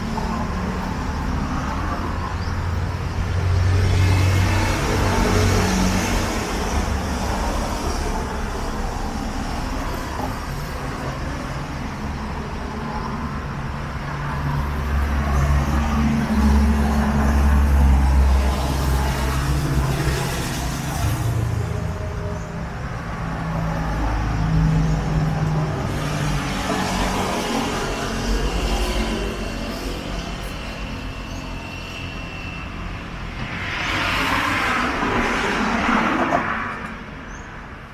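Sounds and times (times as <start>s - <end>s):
vehicle engines passing: 0.0s - 37.9s.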